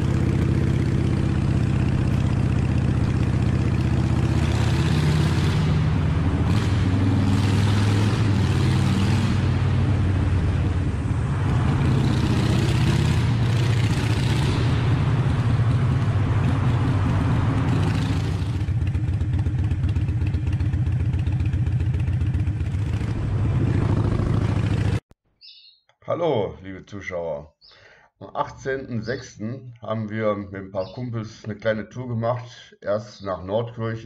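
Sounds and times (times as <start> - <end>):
motorcycle engine running: 0.0 - 25.0
wind rushing over microphone: 9.3 - 15.4, 22.9 - 24.9.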